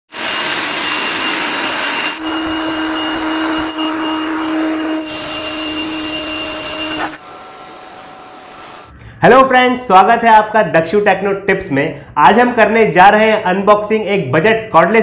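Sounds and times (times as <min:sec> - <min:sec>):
air blower running: 0:00.1 - 0:09.2.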